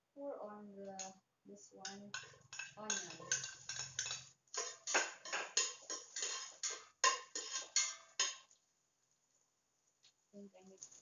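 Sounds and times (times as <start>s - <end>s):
utensil scraping a pot: 1.8s - 8.5s
onion sizzling in hot oil: 2.1s - 8.5s.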